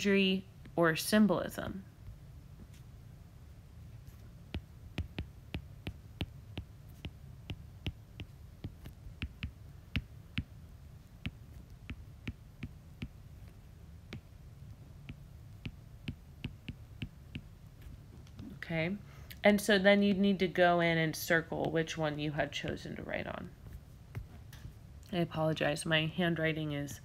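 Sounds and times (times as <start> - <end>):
steady low hum: 0.0 - 27.0
stylus tapping on glass screen: 4.5 - 10.5, 15.0 - 17.5.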